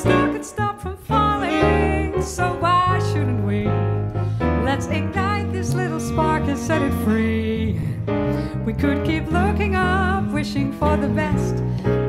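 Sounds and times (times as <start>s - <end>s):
wordless vocals: 0.0s - 4.0s
tenor saxophone: 0.0s - 11.0s
double bass: 0.0s - 12.0s
piano: 0.0s - 12.0s.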